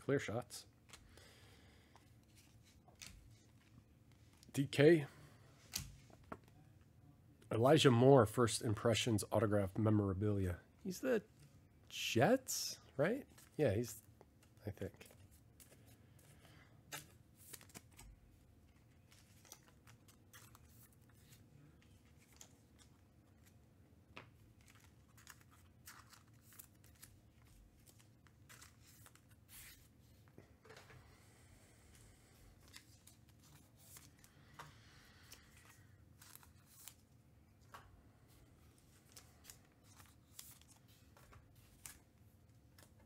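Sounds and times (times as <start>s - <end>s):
cards rustling: 1.9s - 4.5s, 13.2s - 31.2s, 31.8s - 43.0s.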